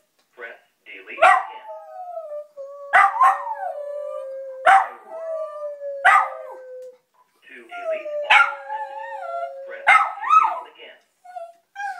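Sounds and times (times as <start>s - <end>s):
dog barking: 1.2s - 1.6s, 2.9s - 3.5s, 4.6s - 5.0s, 6.0s - 6.4s, 8.3s - 8.6s, 9.8s - 10.6s
dog howling: 1.2s - 6.9s, 7.8s - 10.6s.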